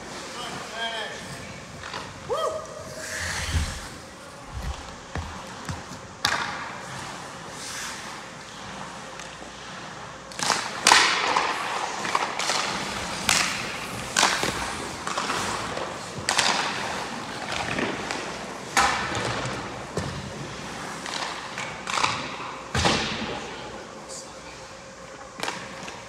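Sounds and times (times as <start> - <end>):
skate blades scraping ice: 0.0 - 23.1
pucks and sticks clacking: 10.3 - 23.2.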